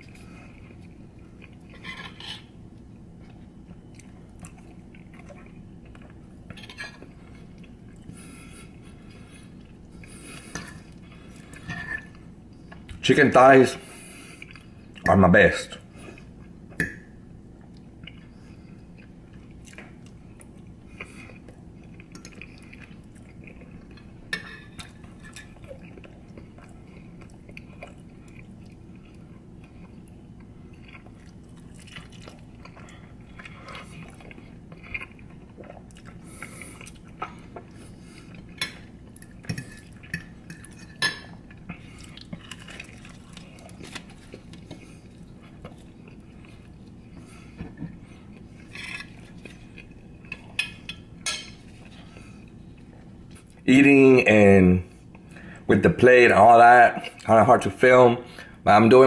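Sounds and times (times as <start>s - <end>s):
low room hum: 0.0s - 59.0s
quiet chewing: 17.6s - 53.6s.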